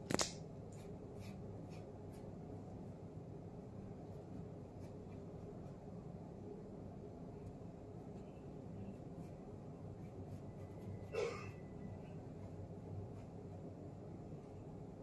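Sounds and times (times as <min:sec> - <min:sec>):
low steady hum: 0:00.0 - 0:15.0
paintbrush scratching on canvas: 0:00.7 - 0:03.0, 0:03.9 - 0:06.0, 0:07.8 - 0:14.7.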